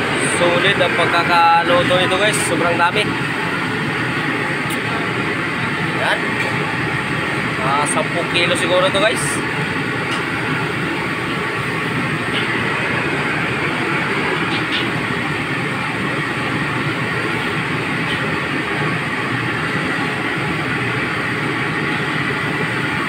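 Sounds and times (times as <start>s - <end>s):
loud rushing noise: 0.0s - 23.0s.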